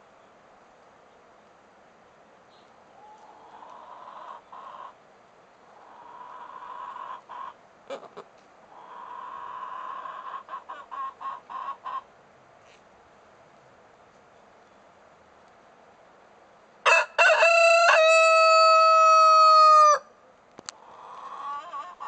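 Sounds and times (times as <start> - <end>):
chickens calling: 3.0 - 5.0, 5.6 - 12.1, 16.9 - 20.0, 20.8 - 22.0
chickens clucking: 3.0 - 5.0, 5.7 - 12.1, 20.8 - 22.0.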